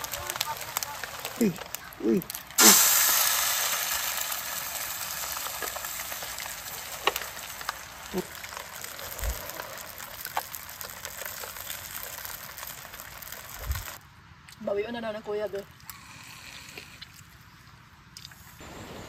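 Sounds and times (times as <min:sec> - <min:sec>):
food sizzling in hot oil: 0:00.0 - 0:14.0
oil popping and crackling: 0:00.0 - 0:14.0.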